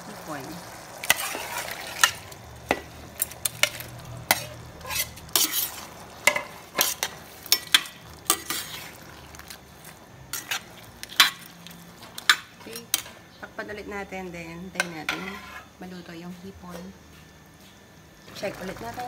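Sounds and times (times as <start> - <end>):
metal spoon clinking on pot: 2.0 - 8.8.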